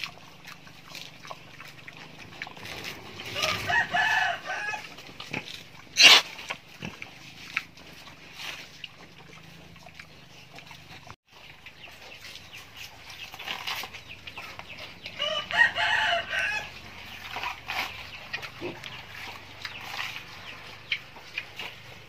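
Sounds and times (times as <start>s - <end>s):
faint chicken clucks: 0.0s - 5.2s, 7.5s - 22.0s
rooster crowing: 3.2s - 5.0s, 15.2s - 16.8s.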